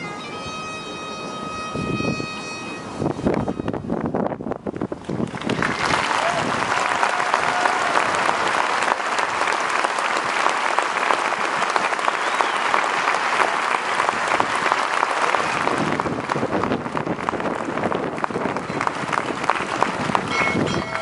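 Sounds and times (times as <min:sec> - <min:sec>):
crowd applauding: 0:05.0 - 0:21.0.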